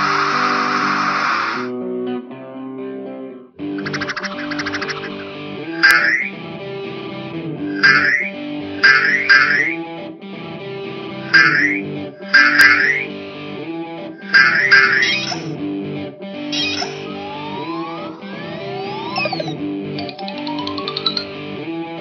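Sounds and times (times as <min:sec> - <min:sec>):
guitar background music: 0:00.0 - 0:22.0
bright cartoon sound effects: 0:03.8 - 0:06.3, 0:07.7 - 0:09.8, 0:11.3 - 0:13.1, 0:14.2 - 0:15.6, 0:16.6 - 0:21.3.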